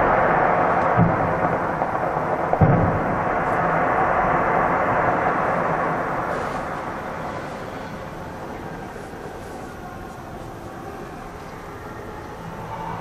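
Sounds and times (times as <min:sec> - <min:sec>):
firework boom: 0:00.0 - 0:08.3
rumble of firework bursts: 0:00.0 - 0:11.4.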